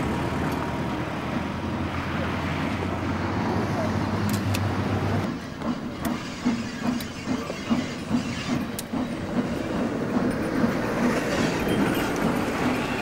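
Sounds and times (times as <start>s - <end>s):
steam locomotive chuffing: 5.2s - 13.0s
sharp clicks: 5.6s - 9.0s.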